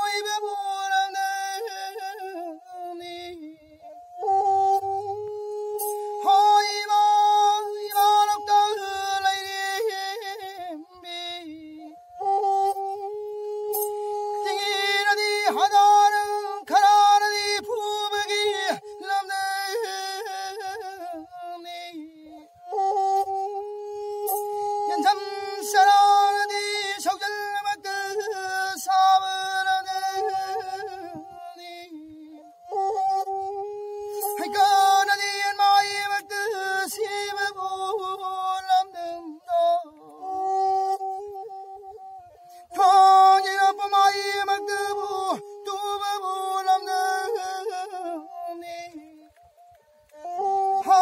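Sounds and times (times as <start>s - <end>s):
bowed one-string fiddle: 0.0s - 51.0s
man singing folk melody: 0.0s - 51.0s
bowed fiddle drone: 4.2s - 9.1s.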